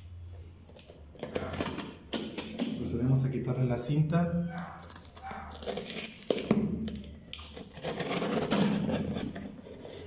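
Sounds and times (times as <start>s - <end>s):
packing tape peeling off box: 4.6s - 10.0s.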